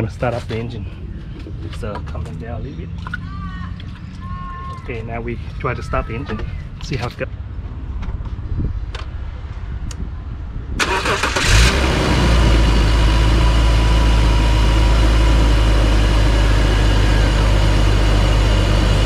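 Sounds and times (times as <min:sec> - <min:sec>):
car engine starting and idling: 0:10.8 - 0:19.0.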